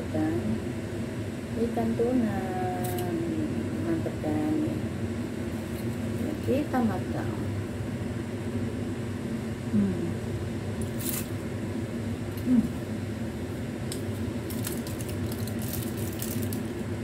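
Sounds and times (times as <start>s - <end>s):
steady low hum: 0.0s - 17.0s
person humming mm: 9.7s - 10.2s, 12.4s - 12.8s.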